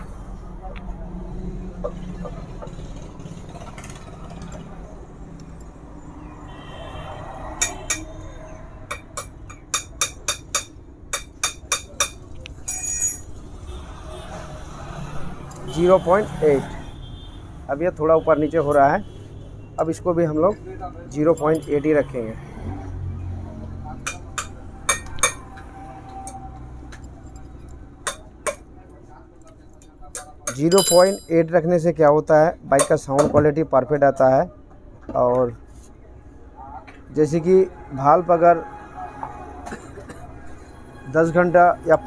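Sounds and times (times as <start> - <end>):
spanner clinking on metal: 9.0 - 13.3, 21.2 - 22.0, 30.5 - 31.5
metallic clinks of spanner: 12.6 - 13.3, 21.2 - 22.0, 30.6 - 31.5.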